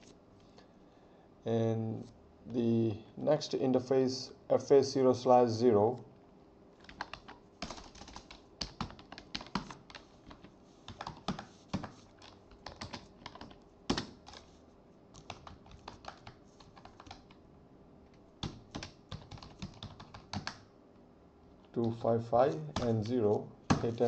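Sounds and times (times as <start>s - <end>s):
keyboard typing: 6.8s - 17.4s, 18.4s - 20.7s, 21.7s - 24.0s.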